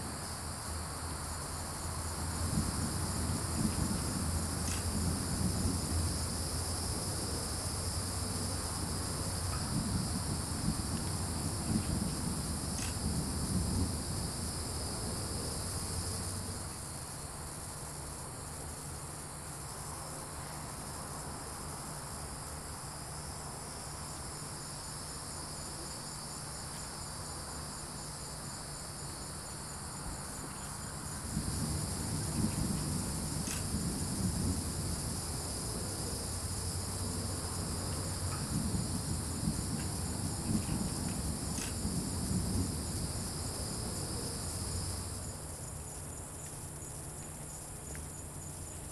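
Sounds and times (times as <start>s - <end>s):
low uneven rumble: 0.0s - 17.7s, 29.9s - 47.4s
crickets and insects chirping: 0.0s - 48.9s.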